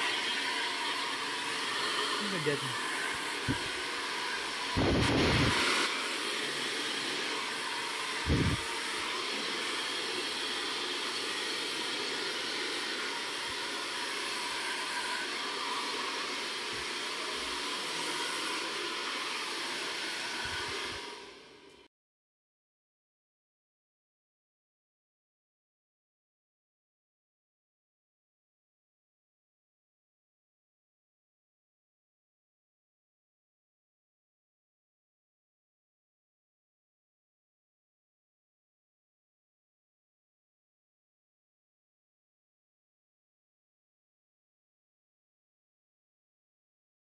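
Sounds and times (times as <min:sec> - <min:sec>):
hair dryer running: 0:00.0 - 0:21.9.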